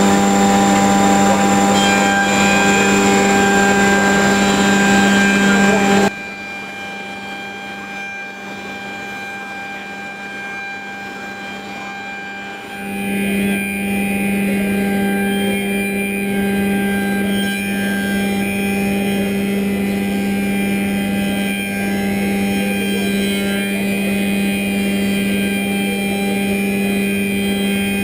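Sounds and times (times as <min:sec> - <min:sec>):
moulder machine humming: 0:00.0 - 0:06.2, 0:12.7 - 0:28.0.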